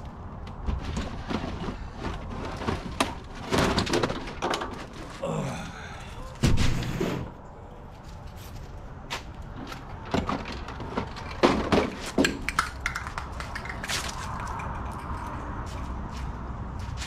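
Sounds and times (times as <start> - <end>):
plastic bins clicking and knocking: 0.4 - 5.2, 9.7 - 15.1.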